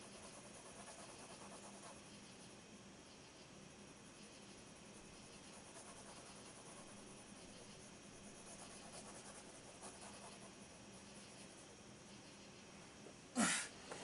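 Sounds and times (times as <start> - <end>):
pencil scratching on paper: 0.0 - 2.5, 4.2 - 12.5
faint low hum: 0.0 - 14.0.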